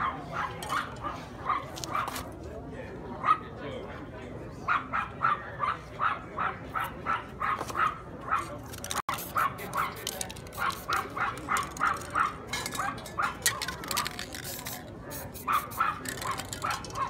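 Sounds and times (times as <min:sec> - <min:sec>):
dog barking: 0:00.0 - 0:02.2, 0:04.7 - 0:08.5, 0:10.6 - 0:13.4, 0:15.4 - 0:17.0.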